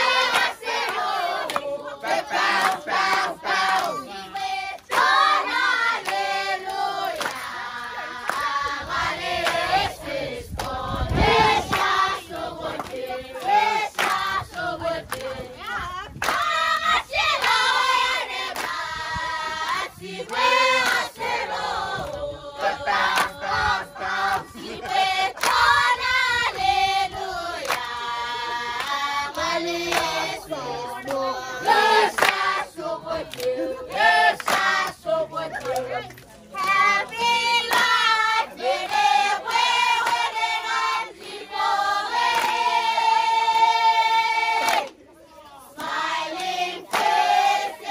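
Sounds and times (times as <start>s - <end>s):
group of voices singing: 0.0s - 47.9s
sharp hand claps: 4.8s - 5.2s, 6.0s - 7.4s, 11.7s - 15.3s, 16.2s - 16.6s, 18.5s - 18.8s, 24.3s - 25.7s, 27.6s - 27.9s, 32.2s - 32.5s, 33.3s - 35.0s, 35.6s - 38.1s, 40.0s - 40.3s, 42.3s - 42.6s, 44.6s - 45.0s, 45.8s - 47.2s.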